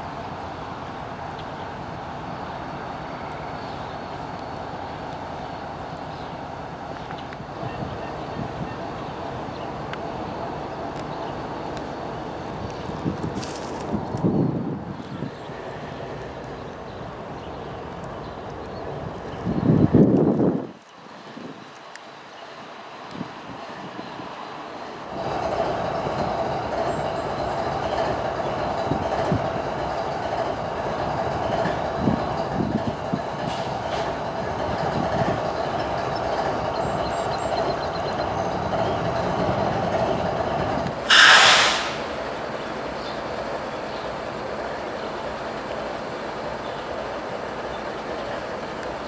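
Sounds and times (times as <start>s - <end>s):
locomotive idling hum: 0.0s - 21.3s, 22.0s - 49.0s
loud hiss: 41.0s - 42.6s.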